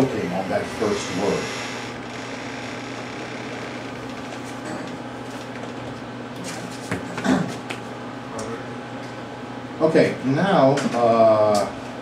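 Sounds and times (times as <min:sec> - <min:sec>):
room noise hum and hiss: 0:00.0 - 0:12.0.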